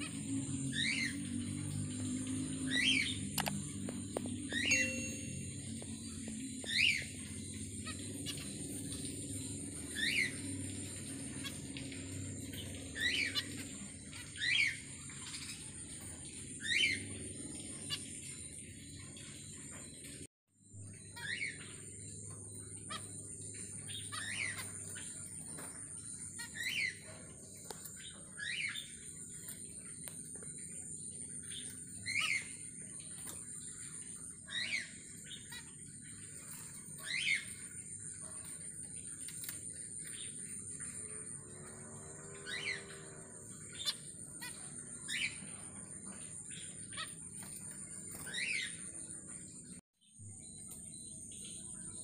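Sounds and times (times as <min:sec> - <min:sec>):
finch calls: 0:00.0 - 0:20.2, 0:20.8 - 0:41.6, 0:42.4 - 0:49.8
high-pitched trill: 0:04.5 - 0:05.8.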